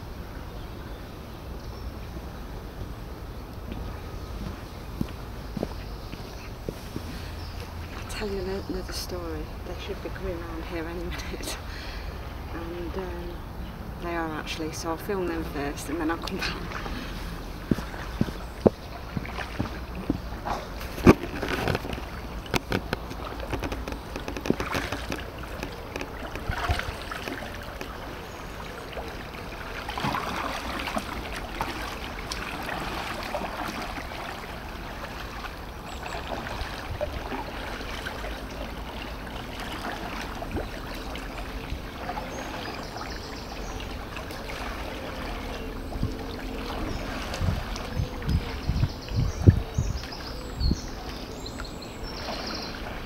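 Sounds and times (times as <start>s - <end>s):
water sloshing and gurgling: 1.9s - 53.0s
kayak paddles splashing: 3.5s - 53.0s
sharp knocks and clicks: 21.0s - 26.5s.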